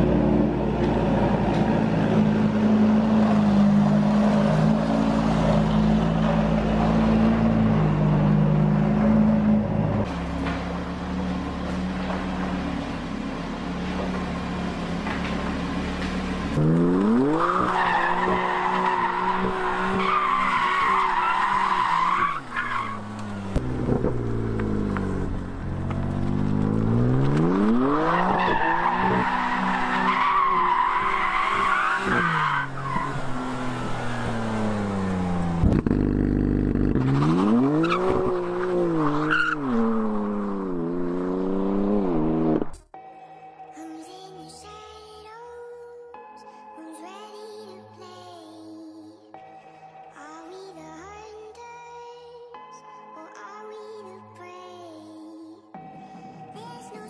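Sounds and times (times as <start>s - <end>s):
tyres spinning and squealing: 16.6s - 24.3s, 26.0s - 35.1s, 37.0s - 40.6s
car engine revving hard: 32.0s - 42.8s.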